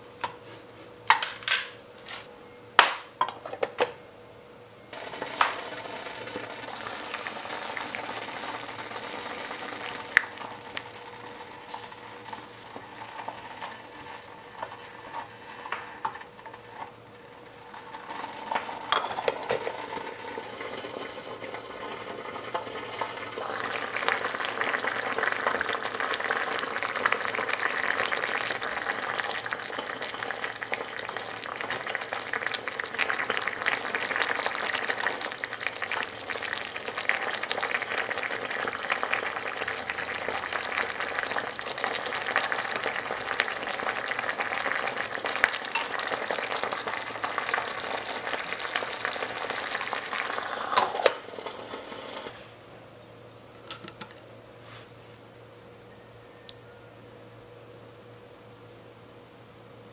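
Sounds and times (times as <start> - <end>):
stew bubbling: 6.6 - 16.2, 17.4 - 52.3.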